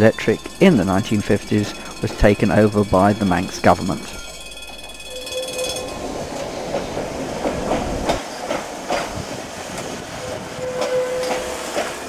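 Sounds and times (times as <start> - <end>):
steady tone: 0.0 - 7.1
tram wheels rumbling over rail joints: 0.0 - 12.0.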